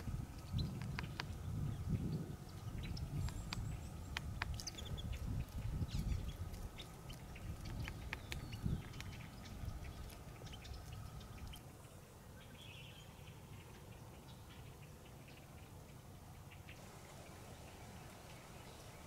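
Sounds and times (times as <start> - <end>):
faint bird chirp: 0.0 - 19.0
small clicks and snaps: 0.3 - 1.4, 3.2 - 11.6.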